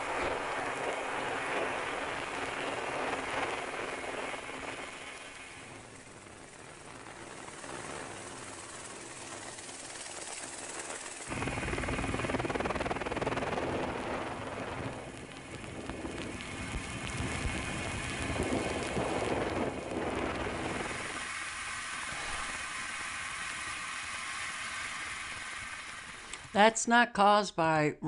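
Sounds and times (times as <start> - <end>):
helicopter engine and rotor: 0.0 - 26.5
wind on microphone: 10.5 - 23.8.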